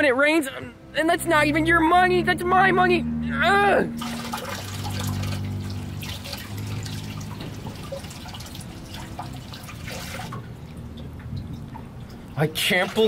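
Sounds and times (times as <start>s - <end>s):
low steady hum: 0.0s - 13.0s
water dripping into storm drain: 4.0s - 13.0s.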